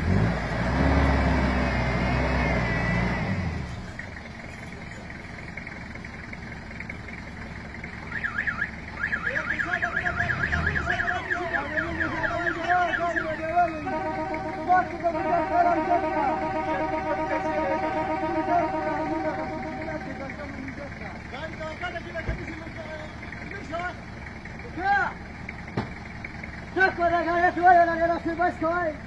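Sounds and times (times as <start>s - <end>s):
vehicle engine running: 0.0s - 29.0s
steady tones: 10.2s - 21.9s.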